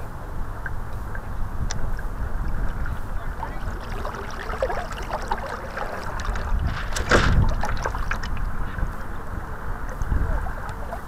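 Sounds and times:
water splashing along a hull: 0.0s - 11.0s
wind buffeting microphone: 0.0s - 11.0s.

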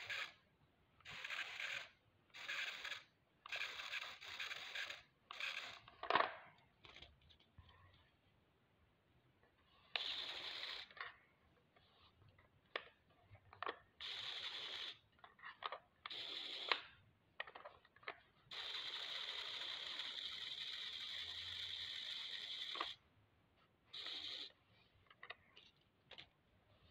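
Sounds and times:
small electric motors whirring: 0.0s - 0.4s, 1.1s - 5.8s, 14.0s - 15.0s, 16.1s - 16.8s, 18.5s - 23.0s, 24.0s - 24.5s.

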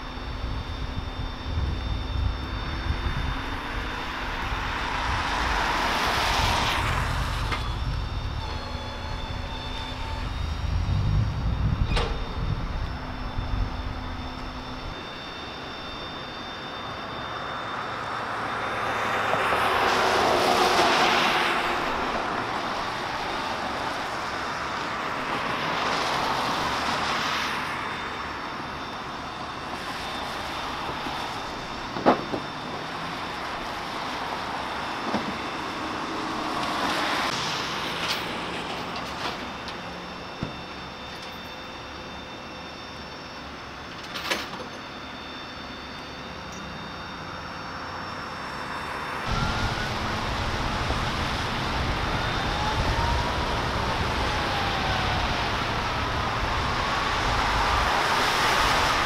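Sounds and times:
car tyres hissing on wet road: 4.6s - 7.4s, 55.4s - 59.0s
low engine rumble: 49.2s - 59.0s.

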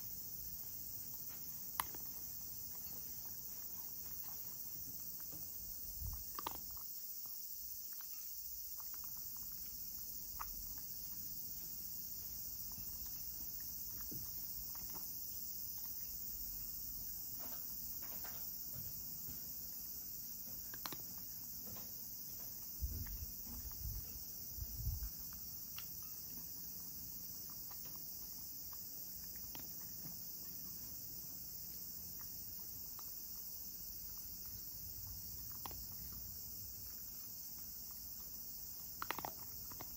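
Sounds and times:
cat crunching kibble: 0.1s - 39.9s.

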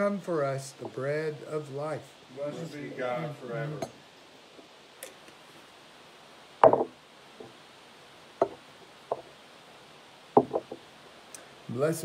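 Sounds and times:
vessels knocking on a table: 6.6s - 7.5s, 8.4s - 9.3s, 10.3s - 10.8s.

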